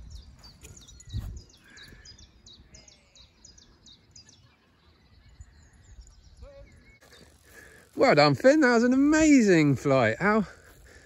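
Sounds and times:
wind rumble on microphone: 0:00.0 - 0:02.8
small birds chirping: 0:00.0 - 0:11.0.

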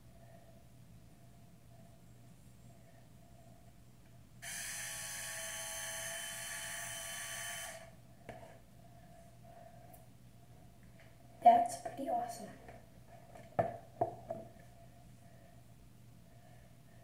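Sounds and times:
small motor whirring: 0:04.4 - 0:08.0.

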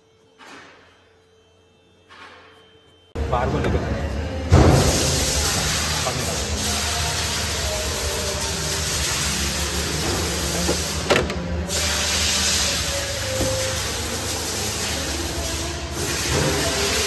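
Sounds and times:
steady workshop hiss: 0:03.8 - 0:17.0.

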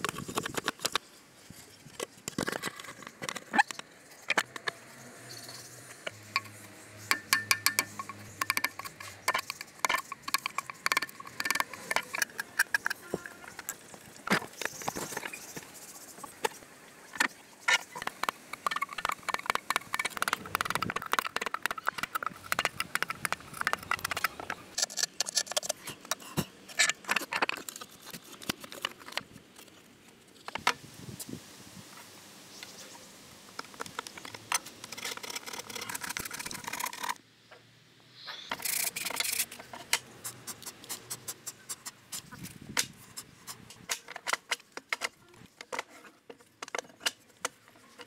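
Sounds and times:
wooden pieces knocking together: 0:07.1 - 0:13.1, 0:17.2 - 0:26.1.

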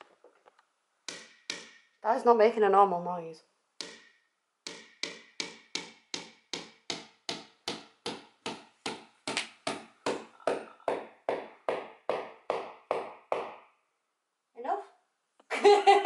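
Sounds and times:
hammer tapping a nail: 0:01.1 - 0:02.0, 0:03.8 - 0:13.7.

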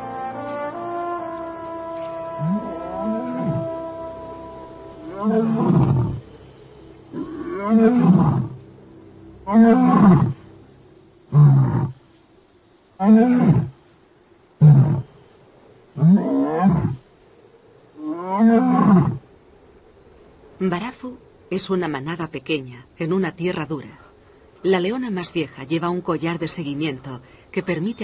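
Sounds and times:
lion roaring: 0:05.1 - 0:06.2, 0:07.1 - 0:08.6, 0:09.4 - 0:10.5, 0:11.3 - 0:12.0.

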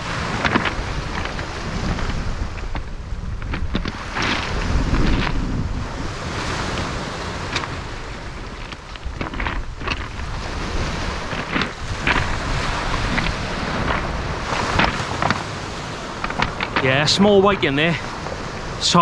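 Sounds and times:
footsteps on stones: 0:00.0 - 0:05.4, 0:08.4 - 0:15.4
small waves on pebble beach: 0:00.0 - 0:19.0
wind buffeting microphone: 0:00.0 - 0:19.0.

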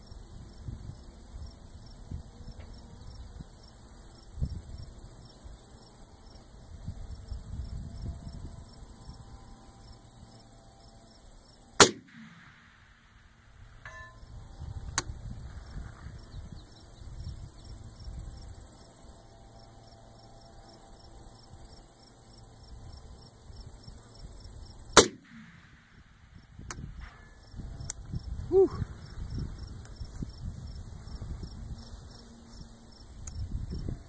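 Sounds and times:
low wind rumble: 0:00.0 - 0:10.4, 0:11.8 - 0:19.9, 0:21.0 - 0:34.0
insects chirping: 0:00.0 - 0:34.0
rifle shot: 0:11.8 - 0:13.9, 0:25.0 - 0:27.4
faint ticks: 0:33.2 - 0:33.4.

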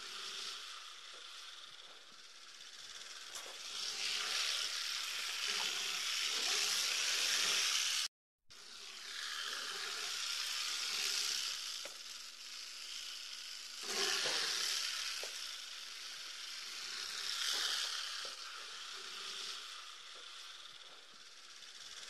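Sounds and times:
porcupine quills rattling: 0:00.2 - 0:08.0.

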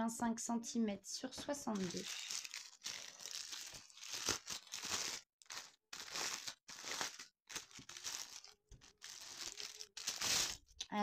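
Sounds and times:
plastic bag crinkling: 0:01.7 - 0:10.8.

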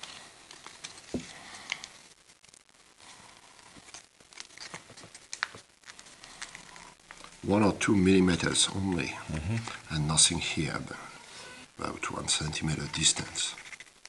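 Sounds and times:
paper rustling and crinkling: 0:00.0 - 0:09.8.

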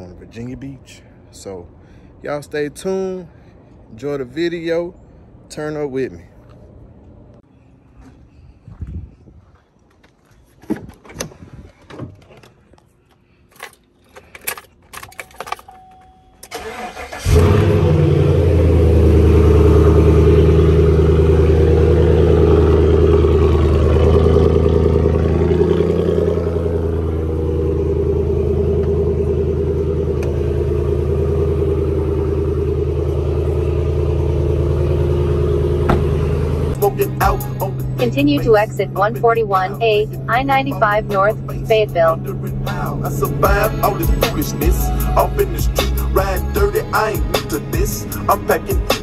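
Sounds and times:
truck engine starting and running: 0:10.6 - 0:49.0.

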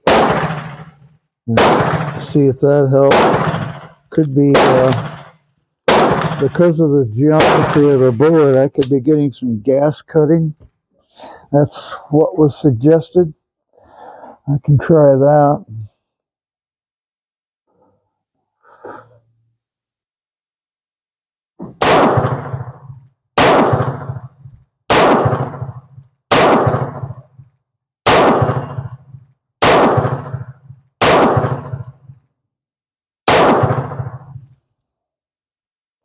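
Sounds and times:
pistol shots: 0:00.0 - 0:09.0, 0:21.6 - 0:27.3, 0:28.0 - 0:32.0, 0:33.2 - 0:34.5.

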